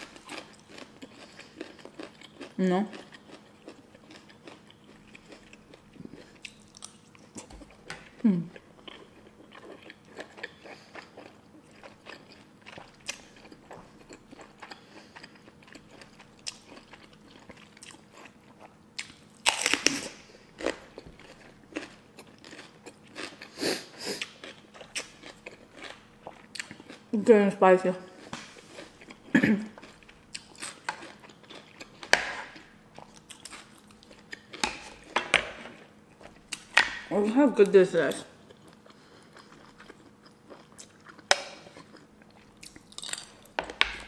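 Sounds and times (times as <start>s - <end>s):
bell pepper crunching: 0.0s - 27.0s, 28.2s - 35.2s, 38.0s - 44.0s
wet chewing: 28.2s - 35.2s, 38.4s - 44.0s.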